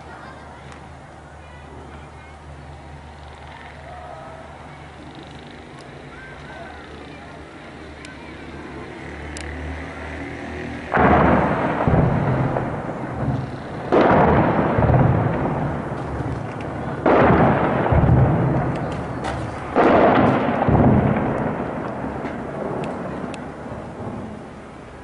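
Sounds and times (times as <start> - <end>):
heavy explosions with rumbling echo: 10.8 - 25.0.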